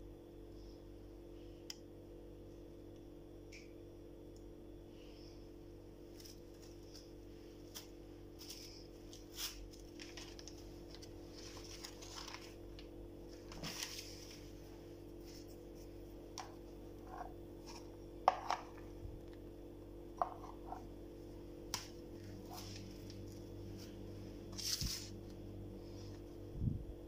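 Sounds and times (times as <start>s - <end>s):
steady low hum: 0.0s - 27.0s
hands handling cloth and plastic: 6.1s - 14.6s, 21.7s - 25.1s.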